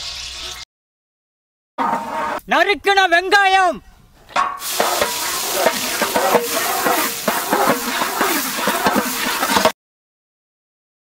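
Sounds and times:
onions sizzling in hot oil: 0:00.0 - 0:00.6, 0:04.6 - 0:09.8
spoon knocking and scraping pan: 0:04.4 - 0:09.8.

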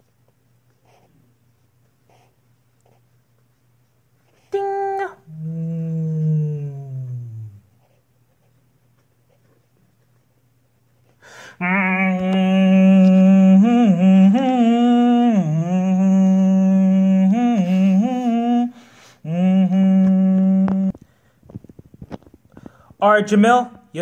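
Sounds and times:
person humming: 0:04.4 - 0:07.9, 0:11.6 - 0:21.0.

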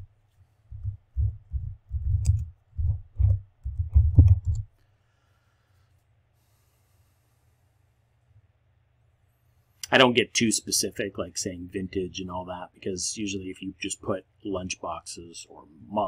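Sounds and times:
typing on keyboard: 0:01.2 - 0:04.6.

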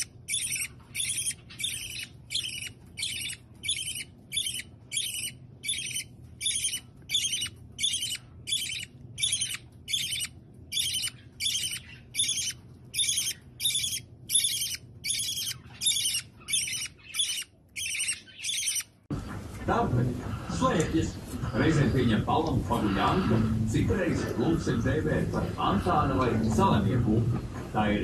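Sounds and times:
parrot making raspy high calls: 0:00.0 - 0:18.9.

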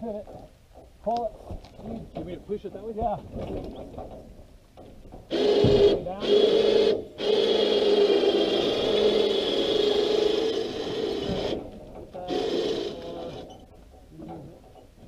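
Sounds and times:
electric winch motor whining: 0:05.3 - 0:13.7.

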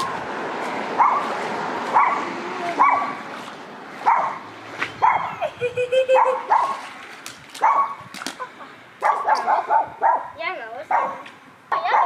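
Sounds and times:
dog barking: 0:01.0 - 0:01.3, 0:01.9 - 0:03.2, 0:04.0 - 0:04.4, 0:05.0 - 0:05.4, 0:06.2 - 0:06.8, 0:07.6 - 0:08.0, 0:09.0 - 0:12.0.

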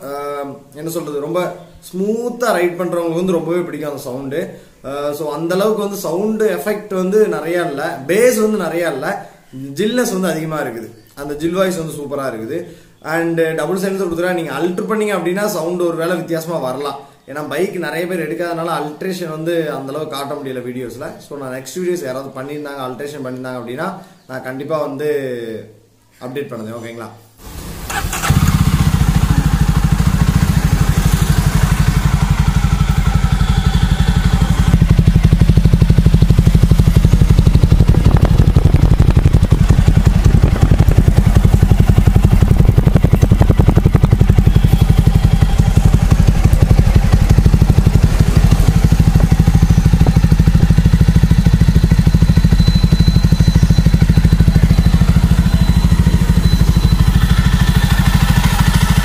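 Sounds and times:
motorcycle engine idling: 0:27.6 - 0:59.0.

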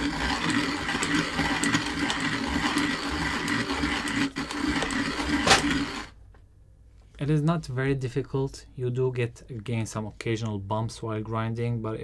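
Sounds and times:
hand grinder grinding coffee: 0:00.0 - 0:06.2.

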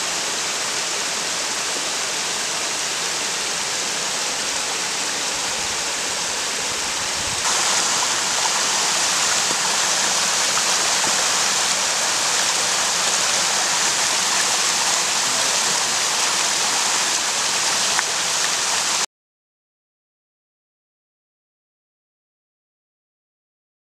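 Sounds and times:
stream rushing over rocks: 0:00.0 - 0:19.1.

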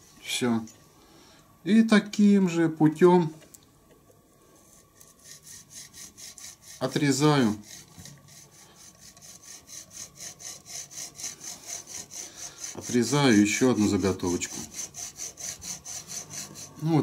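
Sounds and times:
hacksaw cutting metal rod: 0:05.0 - 0:16.9.

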